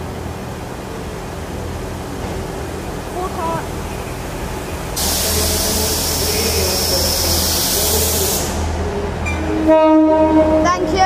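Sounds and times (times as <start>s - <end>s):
diesel train engine rumble: 0.0s - 11.0s
loud rushing hiss: 3.5s - 8.9s
train horn blast: 9.4s - 10.7s.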